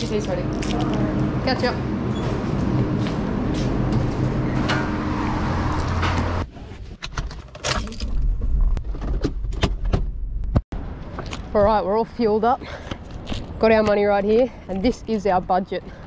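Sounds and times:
low mechanical drone: 0:00.0 - 0:06.5.

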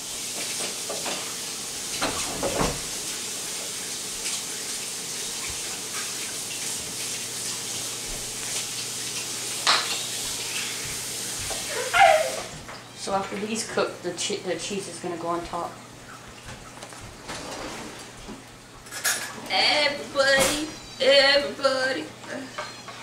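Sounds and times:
vegetables sizzling in hot oil: 0:00.0 - 0:02.0, 0:02.9 - 0:12.5.

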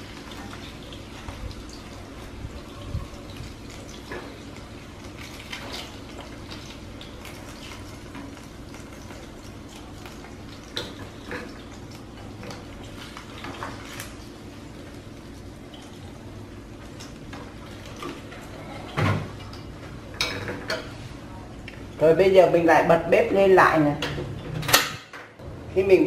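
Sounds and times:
oil sizzling in frying pan: 0:00.0 - 0:18.4.

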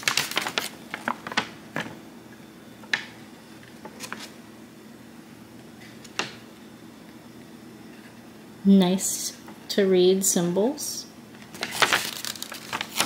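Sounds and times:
paper pages rustling: 0:00.0 - 0:01.9, 0:03.6 - 0:04.4, 0:11.5 - 0:13.0.

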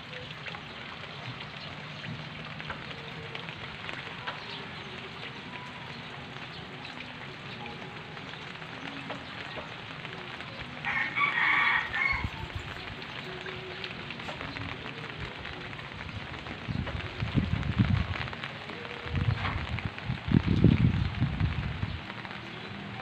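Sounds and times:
heavy rain on leaves: 0:00.0 - 0:23.0
raindrops ticking: 0:00.0 - 0:23.0
rooster crowing: 0:10.8 - 0:12.5.

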